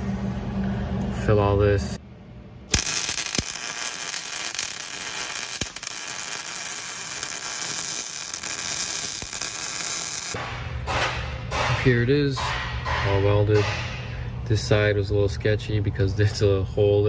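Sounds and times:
welder arc crackling and spattering: 2.7s - 10.4s.

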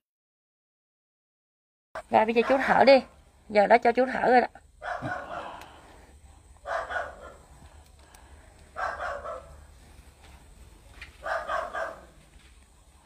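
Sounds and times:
man breathing hard: 5.0s - 6.2s.

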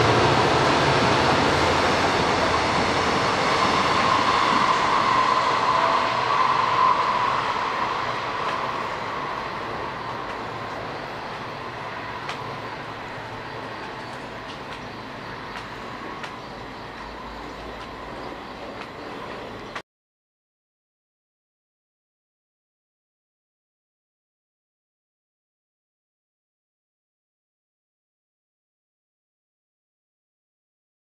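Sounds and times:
steady whine: 0.0s - 19.8s
train running on tracks: 0.0s - 19.8s.

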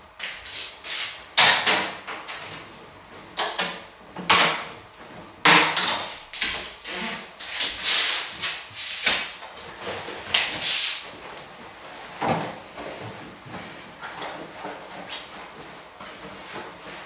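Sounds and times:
cloth rustling and flapping: 4.0s - 17.0s.

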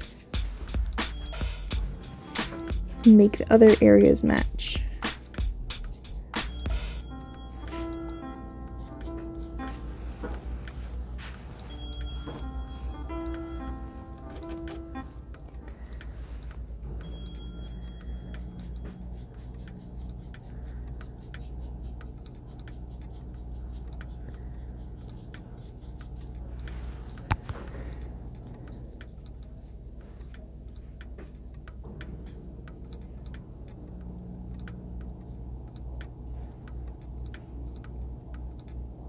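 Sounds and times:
low steady hum: 0.0s - 39.0s
brush ticks and clicks on paper: 7.6s - 10.9s, 14.2s - 32.1s.

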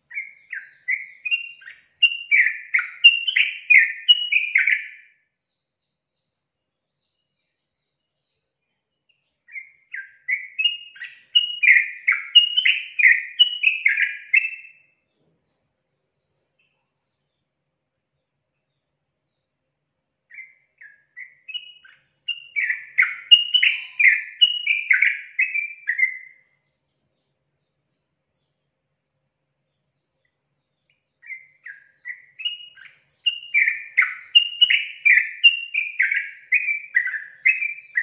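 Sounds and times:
bird singing warbled notes: 20.3s - 26.4s.

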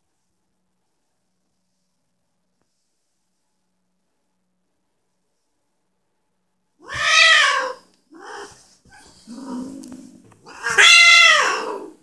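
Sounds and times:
cat growling: 6.8s - 12.0s
cat yowling: 6.8s - 12.0s.

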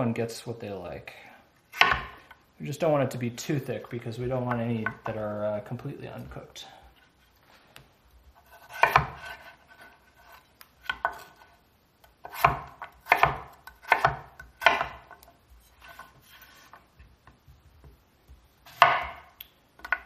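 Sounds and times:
knife slicing potatoes on wood: 1.7s - 2.3s, 8.4s - 17.0s, 18.3s - 20.0s
blade knocking cutting board: 12.3s - 15.1s.

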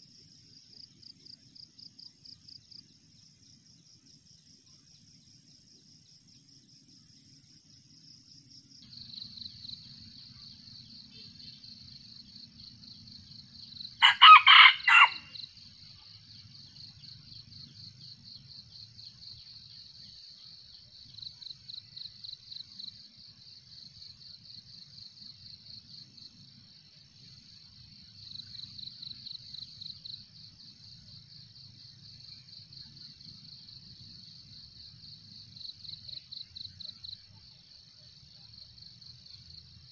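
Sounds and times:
insects buzzing: 0.8s - 39.9s
rooster crowing: 14.0s - 15.4s.

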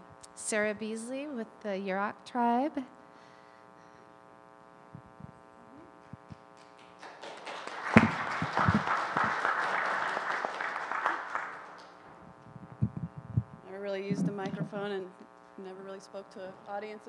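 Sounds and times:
steady low hum: 0.0s - 17.0s
audience applause: 6.6s - 12.2s.

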